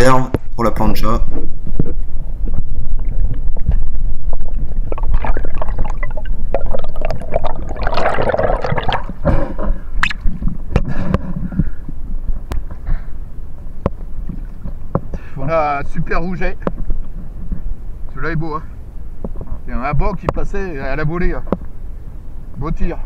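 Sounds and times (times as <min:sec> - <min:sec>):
bubbling rush: 0:04.4 - 0:09.3
water gurgling and rushing: 0:04.4 - 0:09.3.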